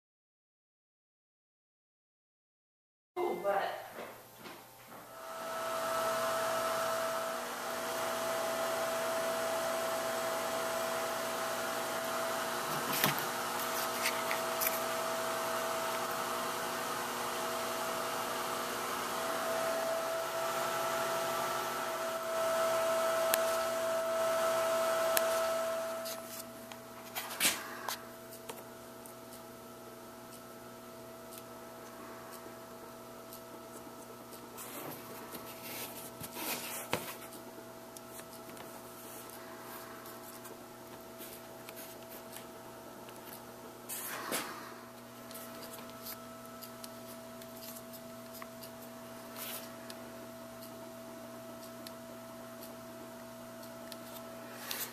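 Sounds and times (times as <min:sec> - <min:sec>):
steady hum: 0:03.2 - 0:54.9.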